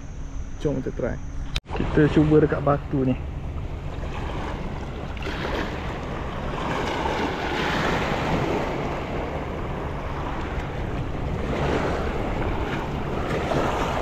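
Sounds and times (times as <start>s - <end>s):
wind rumbling on microphone: 0.0s - 14.0s
waves washing against rocks: 4.0s - 14.0s.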